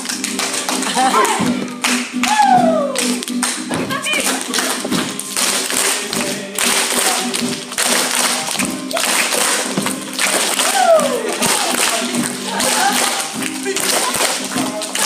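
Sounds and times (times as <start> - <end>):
acoustic guitar song: 0.0 - 15.0
people clapping along: 0.0 - 15.0.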